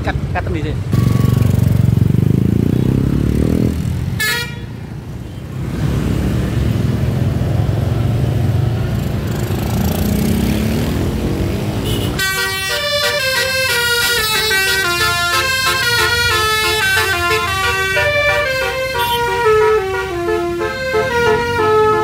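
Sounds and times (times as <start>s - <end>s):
vehicle engine revving: 0.9s - 4.2s, 5.6s - 12.3s
horn toot: 4.2s - 4.7s, 11.8s - 22.0s
bus musical horn melody: 4.2s - 4.8s, 11.8s - 22.0s.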